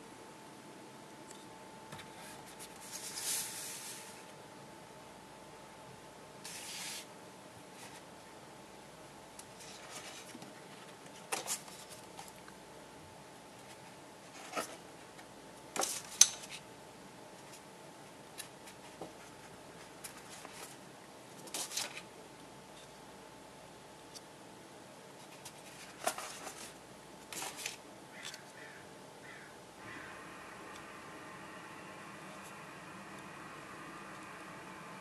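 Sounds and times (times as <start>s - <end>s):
paper and card rustling: 9.6s - 12.4s, 18.4s - 20.8s, 21.4s - 22.0s, 25.2s - 28.4s.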